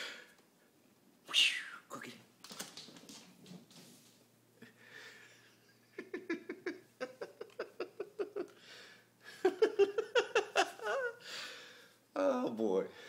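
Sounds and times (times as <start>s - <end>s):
person laughing: 5.5s - 8.6s, 9.3s - 11.2s.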